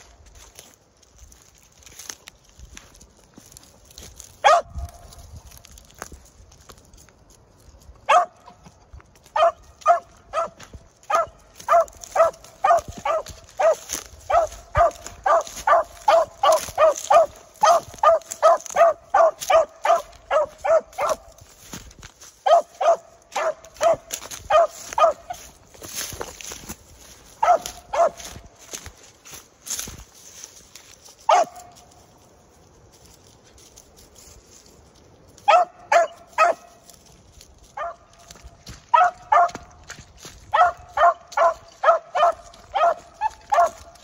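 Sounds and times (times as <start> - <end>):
dog barking: 4.4 - 5.0, 8.1 - 8.6, 9.3 - 21.4, 22.4 - 25.5, 27.4 - 28.4, 31.3 - 31.8, 35.4 - 36.8, 37.8 - 38.1, 38.9 - 39.8, 40.5 - 44.0.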